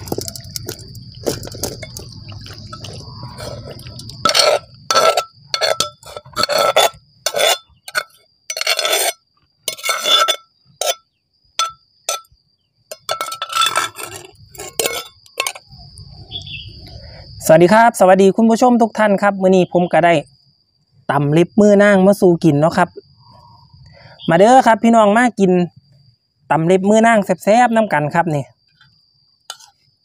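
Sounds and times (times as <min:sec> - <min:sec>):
metal spoon scraping clay mortar: 0:00.0 - 0:11.0, 0:11.6 - 0:12.3, 0:12.9 - 0:15.7, 0:29.5 - 0:29.8.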